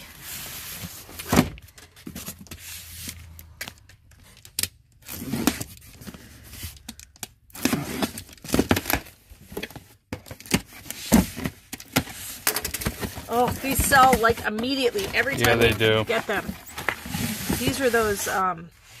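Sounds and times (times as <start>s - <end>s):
tape and cardboard tearing: 2.4s - 9.2s, 10.4s - 18.4s
cardboard box handled on table: 12.8s - 18.4s.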